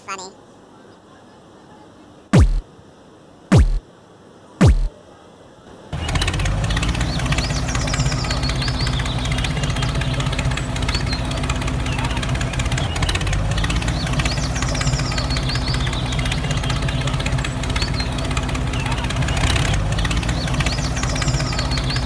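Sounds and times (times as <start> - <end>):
birds chirping: 6.0 - 22.0
tractor engine knocking: 6.0 - 22.0.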